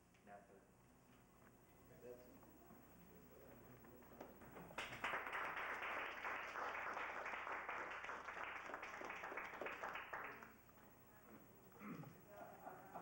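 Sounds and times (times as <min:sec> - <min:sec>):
audience applauding: 0:04.4 - 0:10.6.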